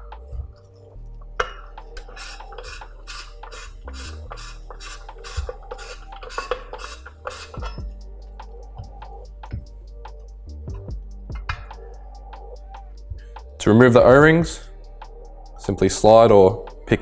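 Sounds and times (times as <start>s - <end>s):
metallic clicks and scraping: 1.4s - 7.9s.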